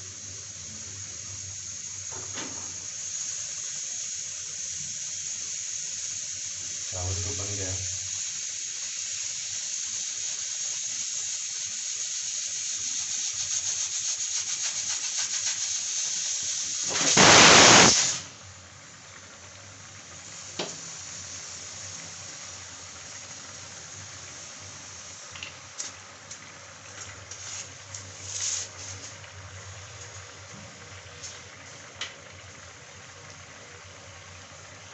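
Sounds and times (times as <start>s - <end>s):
curry boiling in a pan: 0.0s - 17.0s, 18.1s - 34.9s
gas burner hiss: 0.0s - 34.9s
loud rushing burst: 16.9s - 18.3s.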